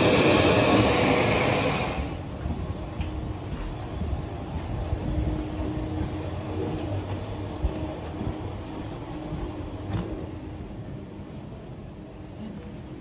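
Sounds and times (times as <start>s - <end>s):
low machinery rumble: 0.0s - 13.0s.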